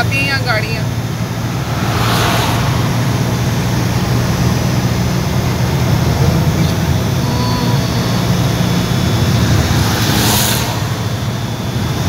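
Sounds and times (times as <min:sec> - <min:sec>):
vehicle engine and road noise: 0:00.0 - 0:12.0.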